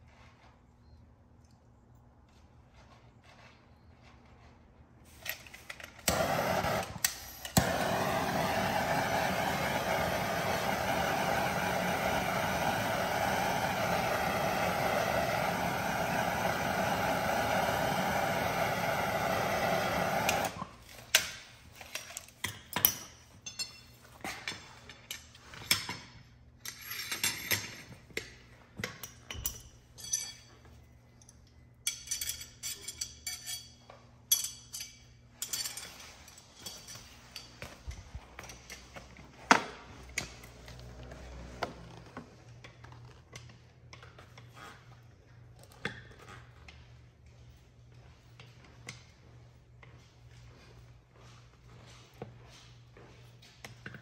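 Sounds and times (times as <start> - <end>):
torch igniter clicks: 6.0 - 20.6
gas torch flame hissing: 6.1 - 20.6
metal tools clinking on concrete: 21.1 - 39.2.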